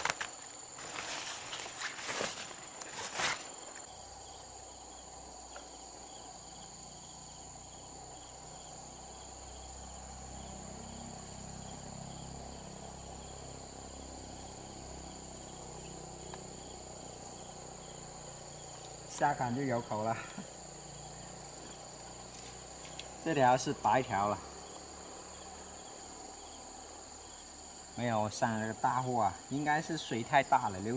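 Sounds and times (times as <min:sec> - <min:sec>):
mesh net rustling and clatter: 0:00.0 - 0:03.8
insects chorus: 0:00.0 - 0:30.9.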